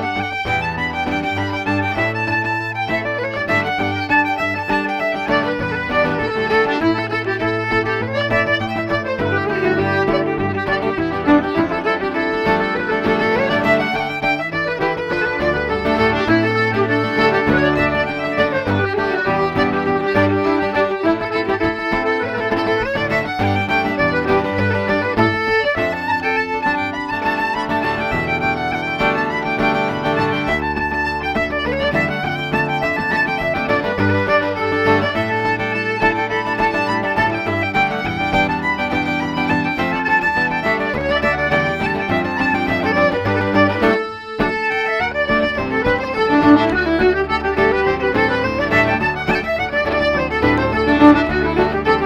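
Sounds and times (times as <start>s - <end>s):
button accordion: 0.0s - 52.0s
fiddle: 0.0s - 52.0s
guitar accompaniment: 0.0s - 52.0s
traditional dance tune played live: 5.4s - 52.0s.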